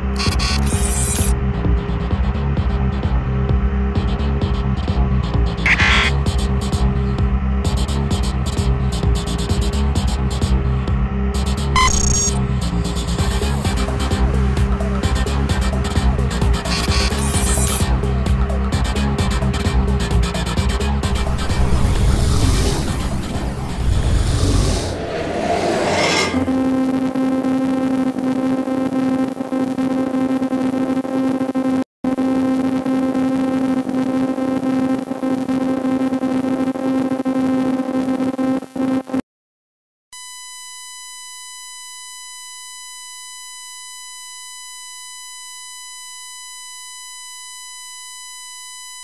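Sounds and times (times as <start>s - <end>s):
electronic drone: 5.6s - 6.7s, 11.4s - 18.2s, 19.0s - 39.2s
high electronic beep tone: 5.7s - 6.2s, 11.8s - 12.5s, 25.1s - 28.2s.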